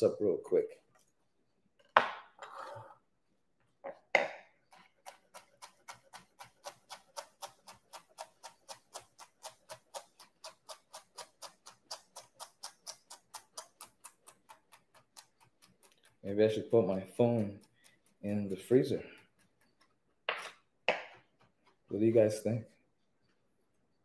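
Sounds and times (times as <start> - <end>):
knife chopping on cutting board: 4.2 - 13.8.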